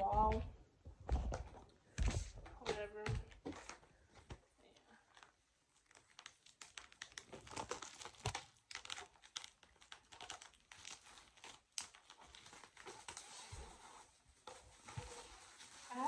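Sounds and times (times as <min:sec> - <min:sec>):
plastic packaging crinkling: 0:04.8 - 0:16.0.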